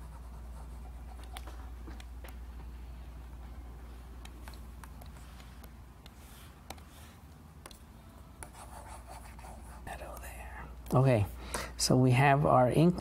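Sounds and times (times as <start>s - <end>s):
steady low hum: 0.0s - 13.0s
stylus tapping on screen: 4.2s - 7.0s, 7.6s - 8.7s
stylus scratching strokes: 4.9s - 10.3s.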